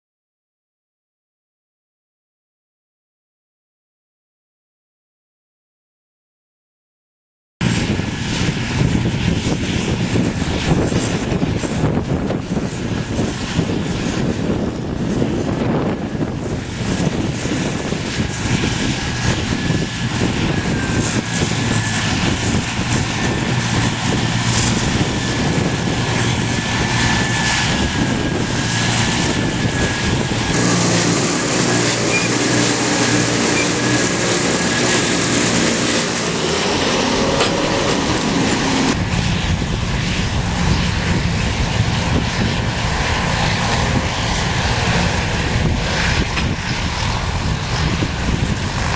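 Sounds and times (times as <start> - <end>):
diesel tractor engines droning: 16.8 - 39.6
high whine: 18.0 - 48.7.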